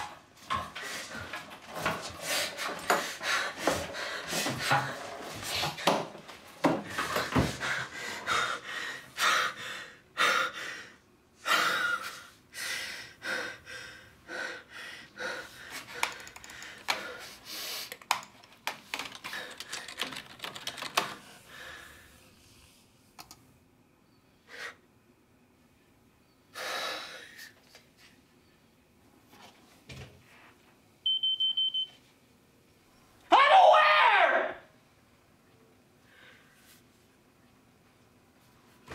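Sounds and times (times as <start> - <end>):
rapid typing on keyboard: 15.9 - 17.2, 17.8 - 21.2.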